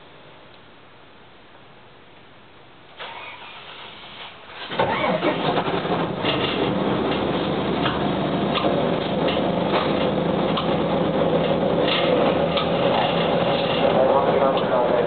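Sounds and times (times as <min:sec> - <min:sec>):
bus diesel engine idling: 0:03.0 - 0:15.0
interior clicks and rattles: 0:04.6 - 0:15.0.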